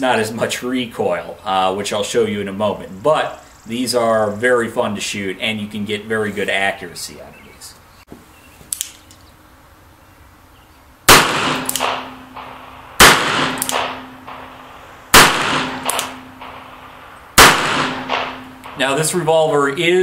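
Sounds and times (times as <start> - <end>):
revolver shots: 11.1 - 18.9.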